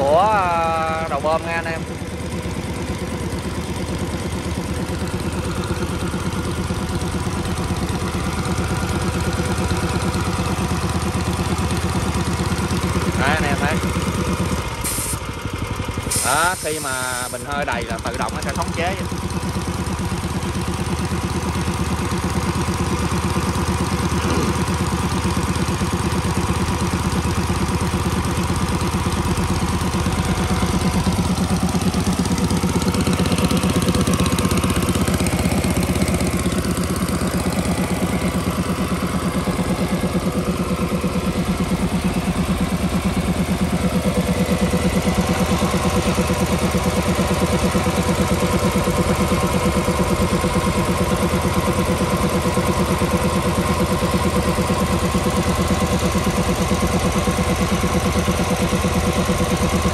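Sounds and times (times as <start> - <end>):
air compressor engine running: 0.0 - 59.9.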